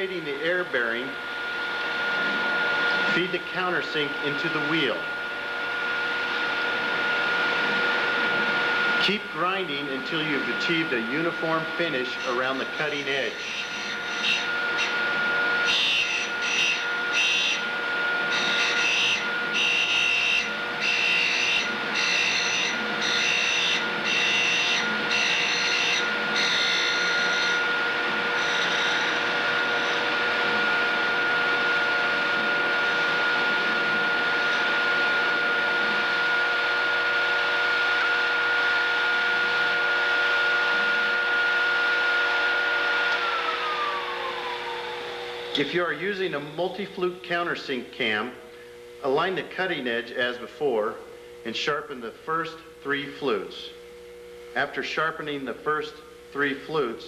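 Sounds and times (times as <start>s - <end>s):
grinder motor humming: 0.0s - 47.1s
motor winding down: 9.9s - 46.5s.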